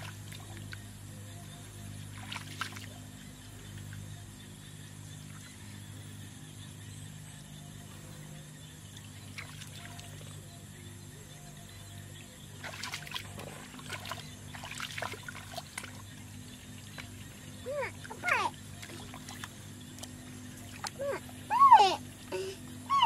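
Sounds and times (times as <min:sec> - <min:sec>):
water splashing in muddy pool: 0:00.0 - 0:00.9, 0:02.0 - 0:03.1, 0:09.0 - 0:10.4, 0:12.6 - 0:21.6
steady low hum: 0:00.0 - 0:23.0.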